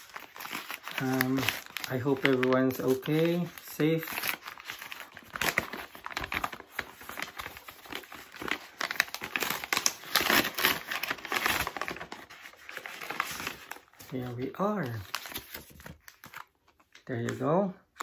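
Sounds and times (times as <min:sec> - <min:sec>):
envelope packaging crinkling: 0:00.0 - 0:18.0.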